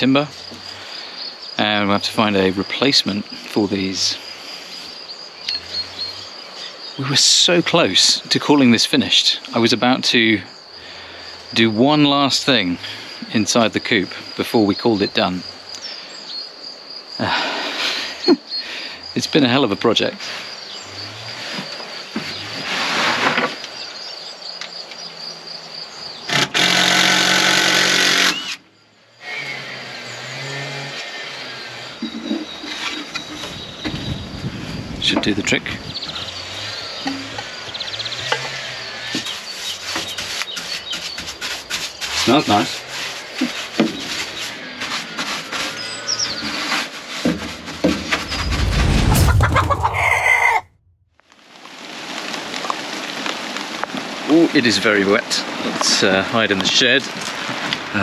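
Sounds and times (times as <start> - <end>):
loud low rumble: 48.2 - 51.0
chickens clucking: 49.2 - 50.6.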